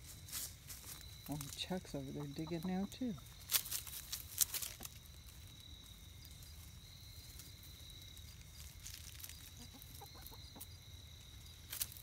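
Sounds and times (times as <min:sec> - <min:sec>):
hens clucking softly: 0:02.0 - 0:03.3, 0:09.4 - 0:10.8.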